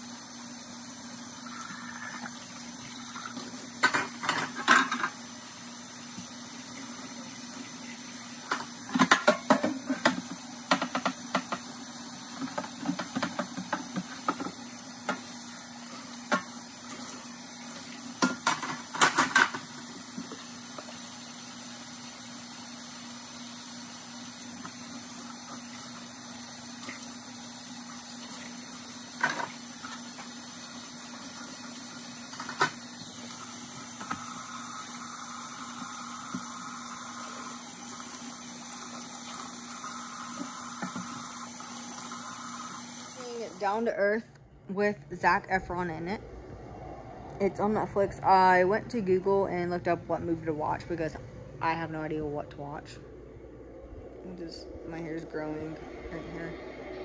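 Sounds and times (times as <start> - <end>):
tap water running into sink: 0.0 - 43.7
dishes clattering and clinking: 3.3 - 5.2, 8.5 - 11.7, 18.2 - 20.3.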